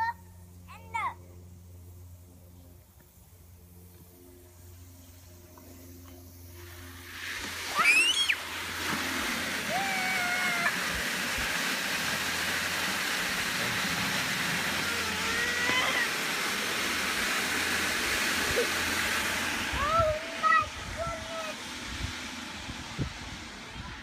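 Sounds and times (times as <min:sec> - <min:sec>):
sprinkler spraying into plastic bucket: 0:05.6 - 0:24.0
child squealing: 0:07.7 - 0:08.4, 0:09.7 - 0:10.8, 0:14.8 - 0:16.1
child calling out: 0:09.7 - 0:10.8, 0:14.8 - 0:16.1.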